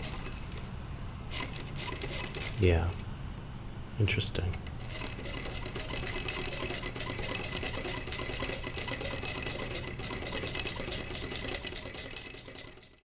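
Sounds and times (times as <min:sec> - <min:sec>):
toy sewing machine clattering: 0:01.3 - 0:02.6, 0:04.8 - 0:13.0.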